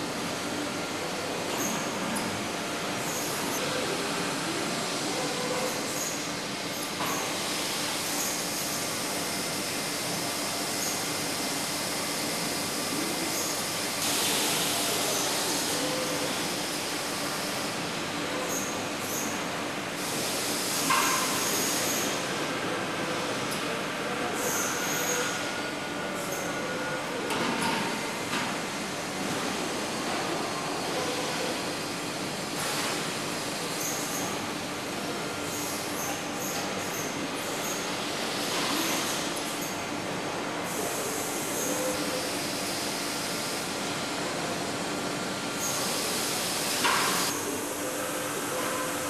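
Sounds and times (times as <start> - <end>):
machinery hiss: 7.1 - 17.9, 18.5 - 22.4, 35.1 - 49.0.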